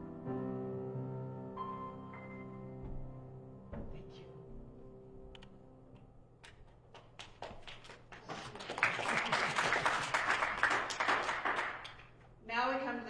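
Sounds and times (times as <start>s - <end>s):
grand piano chord: 0.0s - 5.9s
congregation applauding: 6.9s - 12.2s.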